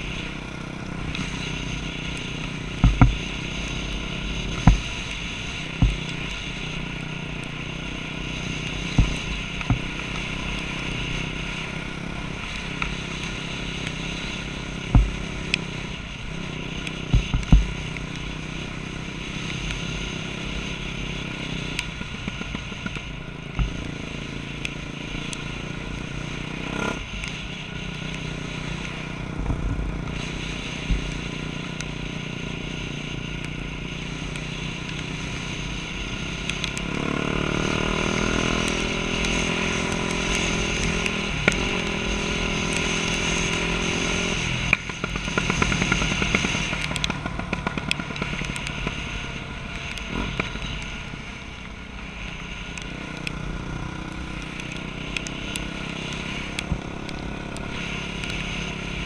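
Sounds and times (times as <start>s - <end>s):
dirt bike engine revving: 36.5s - 51.1s.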